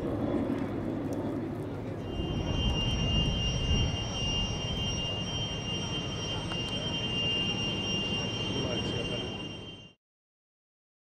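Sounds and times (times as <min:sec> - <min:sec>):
jet engines whining: 0:01.9 - 0:10.0.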